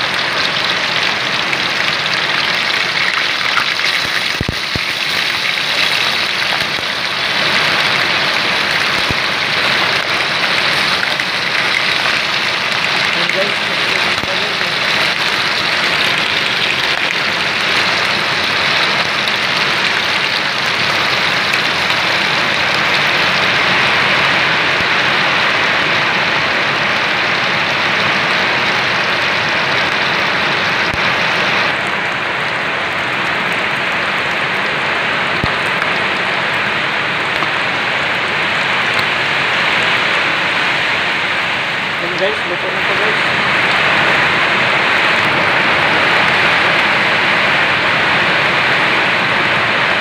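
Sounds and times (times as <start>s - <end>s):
fish sizzling in hot oil: 0.0s - 22.7s.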